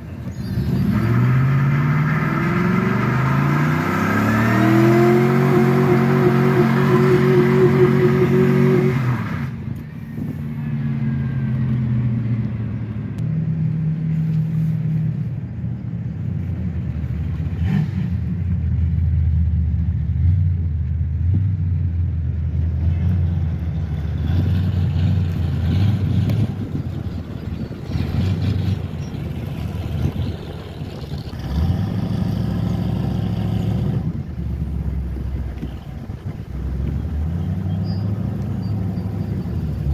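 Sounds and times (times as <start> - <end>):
truck engine revving: 0.0 - 14.9, 21.3 - 39.9.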